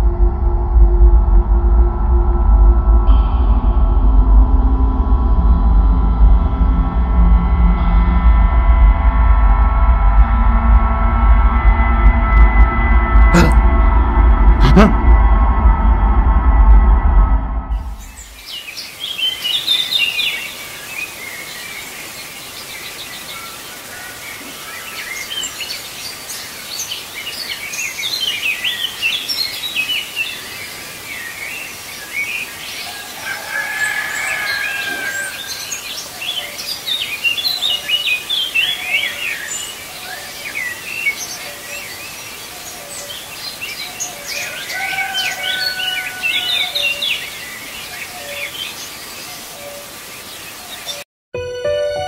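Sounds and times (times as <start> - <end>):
birds chirping: 14.6 - 15.0, 17.8 - 51.0
steady background hiss: 18.0 - 44.8, 46.8 - 51.0
long bird calls: 18.0 - 51.0.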